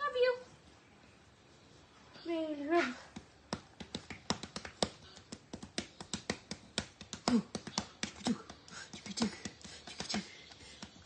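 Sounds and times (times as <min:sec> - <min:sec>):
hands patting dog's belly: 0:03.1 - 0:11.0.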